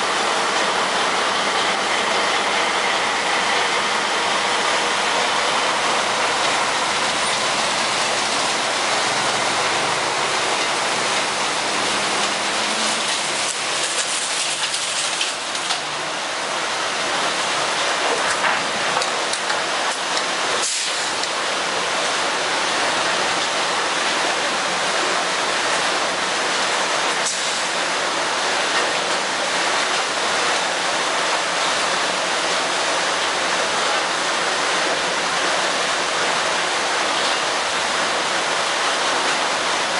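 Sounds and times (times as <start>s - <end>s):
wood chips pouring: 5.3s - 15.8s.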